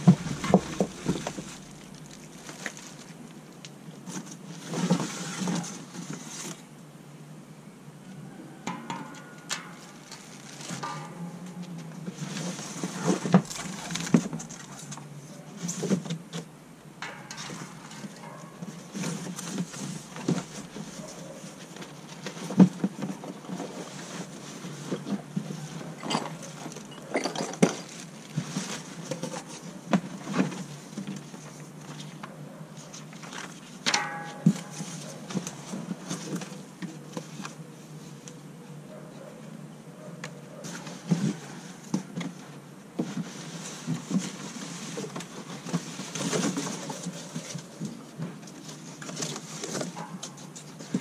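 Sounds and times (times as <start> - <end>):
packaging rustling: 0.0 - 3.4
steady low hum: 0.0 - 4.1
knocks and clinks of parts: 26.0 - 28.2.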